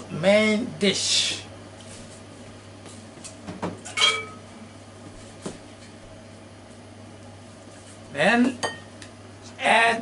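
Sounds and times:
steady low hum: 0.0s - 10.0s
tableware clinking: 3.9s - 4.4s, 8.6s - 8.9s.

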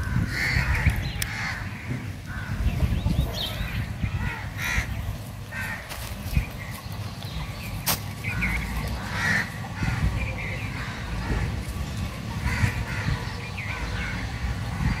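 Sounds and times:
crows cawing: 0.0s - 2.7s, 4.1s - 6.0s, 8.3s - 11.6s, 12.4s - 15.0s.

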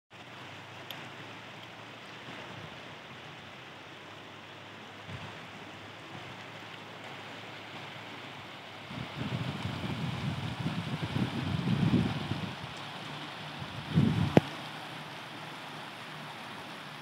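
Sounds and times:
river flowing over stones: 0.1s - 17.0s.

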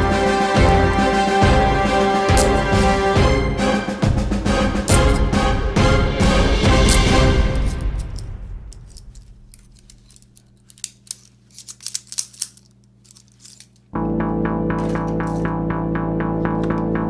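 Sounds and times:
guitar music: 0.0s - 7.6s, 14.0s - 17.0s
background music: 0.0s - 9.0s, 14.0s - 17.0s
toy handcuffs clicking and ratcheting: 6.8s - 13.9s.

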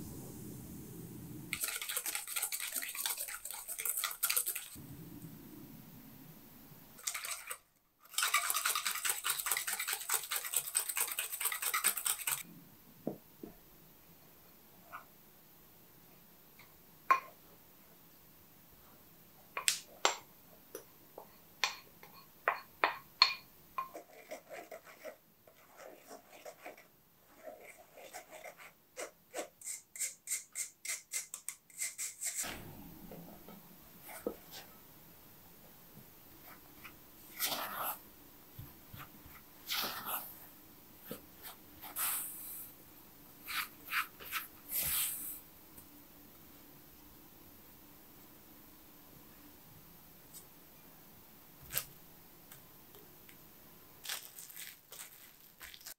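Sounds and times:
spatula mixing dough in bowl: 1.6s - 4.8s, 7.0s - 12.4s, 23.8s - 29.6s, 36.4s - 38.0s, 38.6s - 40.4s
spoon scraping ceramic bowl: 1.6s - 4.8s, 7.0s - 12.4s.

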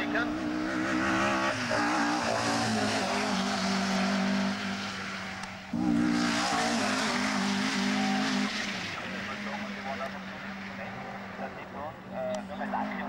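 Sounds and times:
rally car engine running hard: 0.0s - 13.0s.

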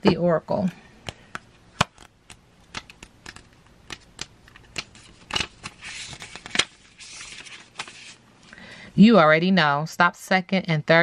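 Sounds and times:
cards clicking and snapping: 1.0s - 6.8s
cards sliding and rustling: 1.0s - 8.2s.

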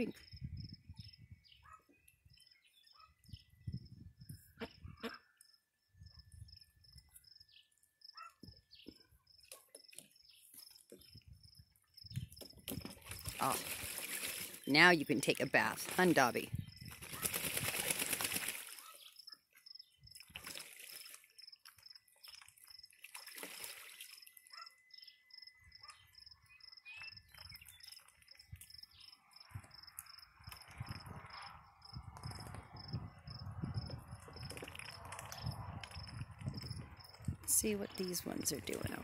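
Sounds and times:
duck splashing water: 12.7s - 19.0s, 20.1s - 24.6s, 34.4s - 36.2s.

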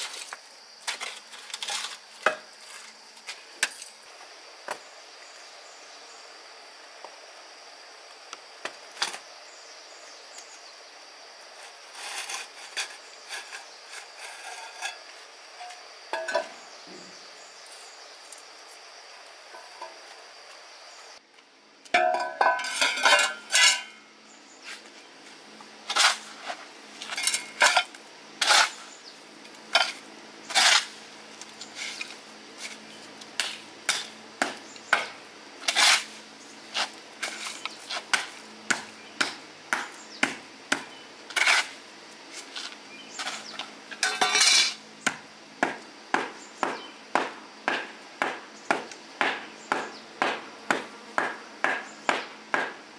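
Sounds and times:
dishes and utensils clinking: 22.0s - 24.0s, 44.0s - 44.8s.

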